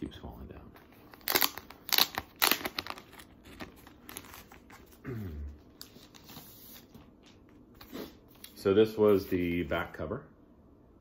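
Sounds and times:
plastic wrapping crinkling: 0:01.0 - 0:05.0.

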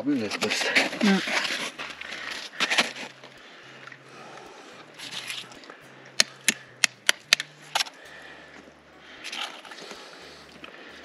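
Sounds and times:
tool scraping ice: 0:00.2 - 0:03.2.

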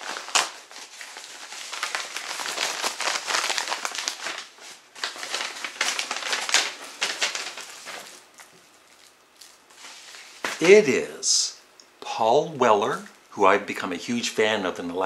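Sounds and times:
cd packaging crinkling: 0:00.0 - 0:10.8.

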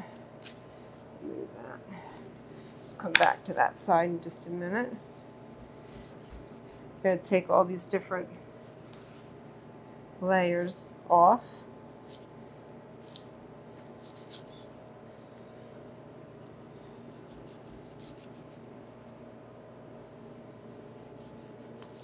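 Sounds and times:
steady low hum: 0:00.0 - 0:22.0
knife slicing and scraping meat: 0:16.5 - 0:18.7, 0:20.3 - 0:22.0.

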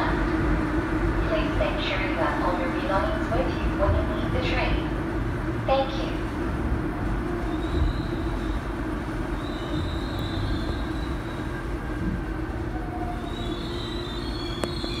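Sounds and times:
subway train running rumble: 0:00.0 - 0:15.0
high wheel squeals: 0:13.2 - 0:15.0.

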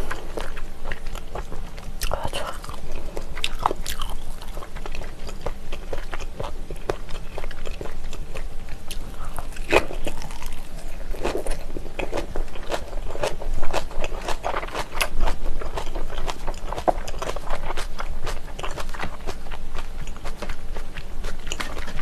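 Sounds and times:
person chewing and biting: 0:00.0 - 0:22.0.

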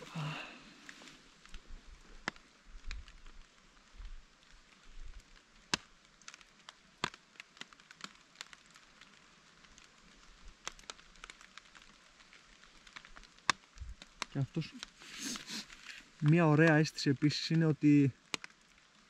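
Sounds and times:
faint rain hiss: 0:00.0 - 0:19.0
raindrops tapping on tarp: 0:00.0 - 0:19.0.

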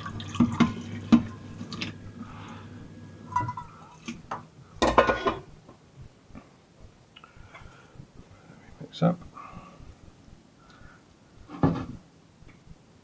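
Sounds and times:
bowl and brush clinking on sink: 0:03.3 - 0:04.1
dishes clattering: 0:03.3 - 0:05.5.

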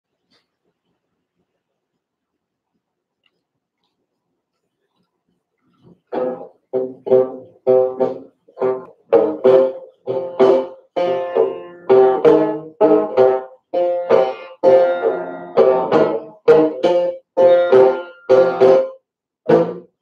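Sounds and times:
guitar chords strummed: 0:06.2 - 0:18.9, 0:19.5 - 0:19.9.

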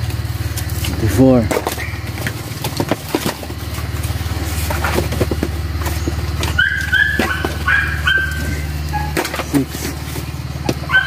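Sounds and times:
engine idling hum: 0:00.0 - 0:11.0
coconuts knocking: 0:00.5 - 0:11.0
dog whining: 0:06.4 - 0:09.7, 0:10.6 - 0:11.0.

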